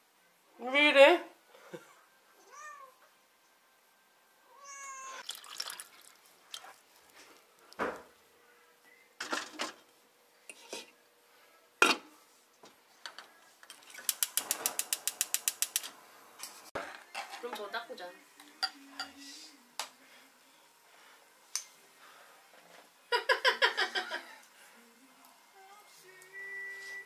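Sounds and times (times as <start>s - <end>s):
cat meowing: 2.4s - 3.0s, 4.5s - 5.2s
gas stove igniter clicking: 14.1s - 16.0s.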